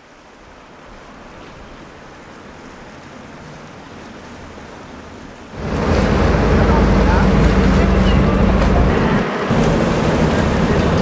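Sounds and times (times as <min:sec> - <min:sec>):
sea noise: 0:00.0 - 0:11.0
wind: 0:00.0 - 0:11.0.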